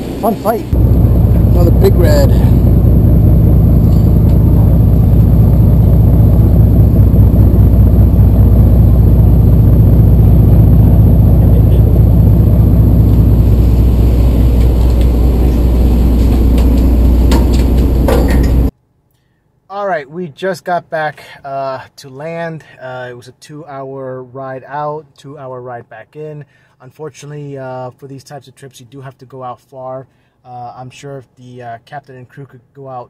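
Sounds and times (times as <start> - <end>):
boat engine running: 0.8 - 18.7.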